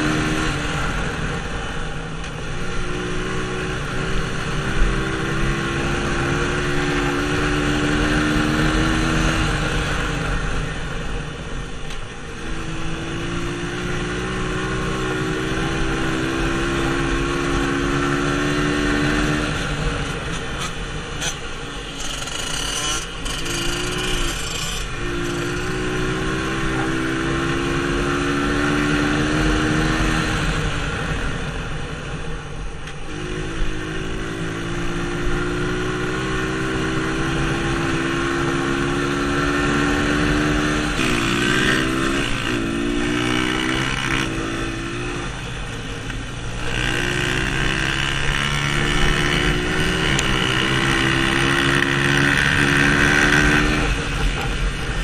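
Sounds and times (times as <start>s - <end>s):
dirt bike engine: 0.0s - 32.1s, 32.8s - 55.0s
continuous rushing noise: 0.0s - 55.0s.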